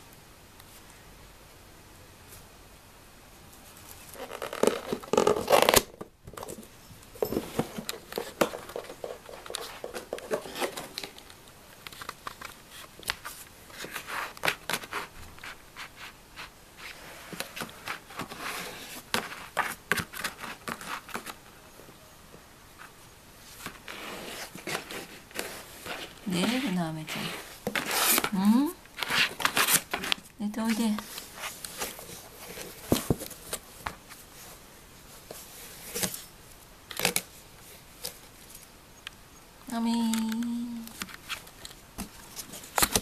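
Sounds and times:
cat scratching cardboard box: 11.9 - 21.5, 23.5 - 33.6.

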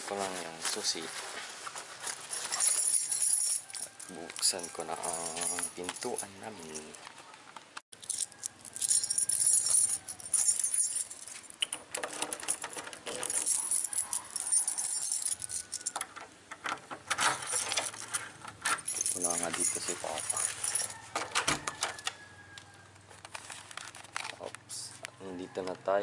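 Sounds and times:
keys jangling against doorknob: 2.2 - 6.9, 8.0 - 22.1
key worked in lock: 8.0 - 22.2.

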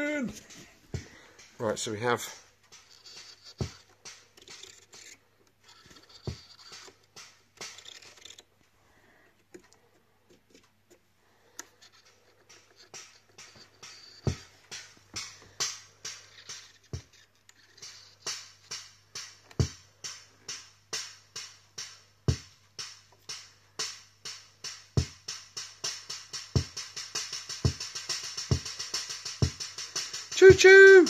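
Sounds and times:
electronic drum pattern: 0.9 - 5.1, 13.4 - 17.2, 17.8 - 31.0.

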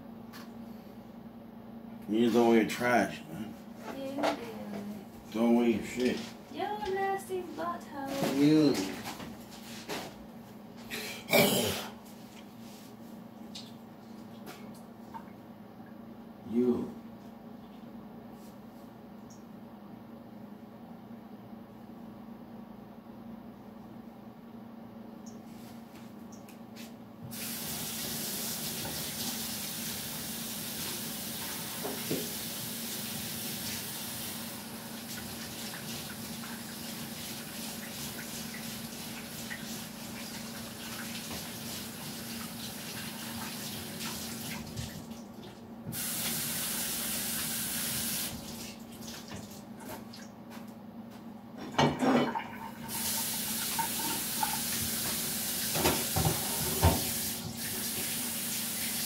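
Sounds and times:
tap running into a sink: 31.4 - 32.4, 53.0 - 58.2
dishes clattering: 51.6 - 52.8.

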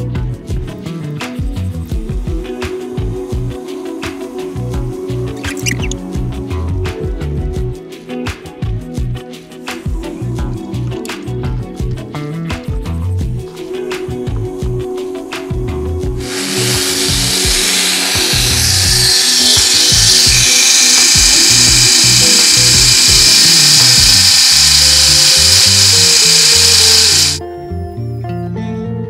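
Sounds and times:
rotary tool grinding metal: 5.5 - 6.0, 16.2 - 27.4.

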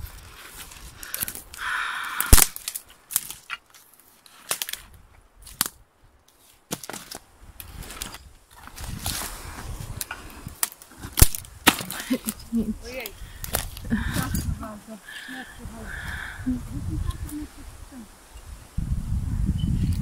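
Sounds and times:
brush rustling: 0.0 - 19.0
twigs snapping and cracking: 0.5 - 9.3, 9.9 - 12.4, 13.0 - 13.9.

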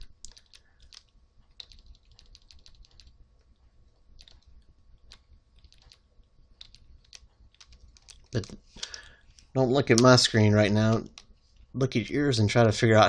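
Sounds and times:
keyboard keys clicking: 0.2 - 3.1, 4.2 - 9.1.

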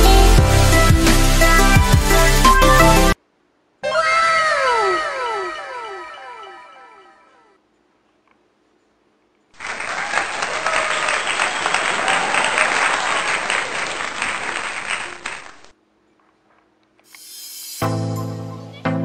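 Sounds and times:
music: 0.0 - 3.2, 17.7 - 19.0
crowd applause: 9.6 - 15.7.

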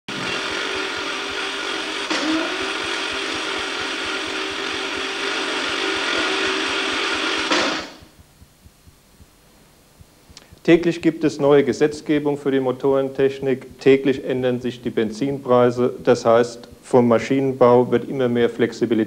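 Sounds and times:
motor mechanism whirring: 0.1 - 8.2.

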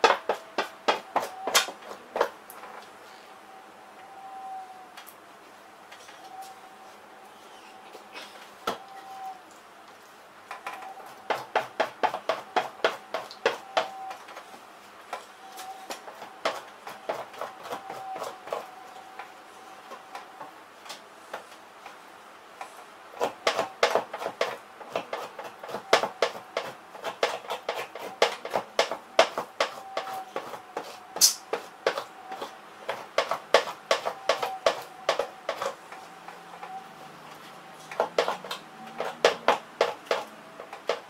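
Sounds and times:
knife scraping hide: 23.2 - 35.8.

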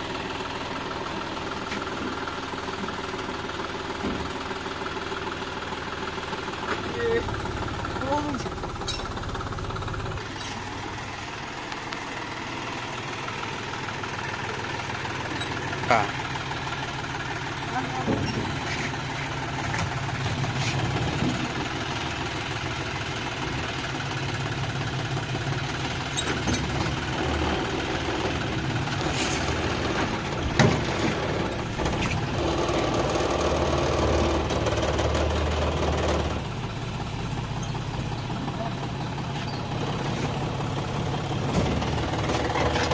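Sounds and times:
tractor diesel engine idling: 0.0 - 42.9
metal knocks and clanks: 17.9 - 19.0.

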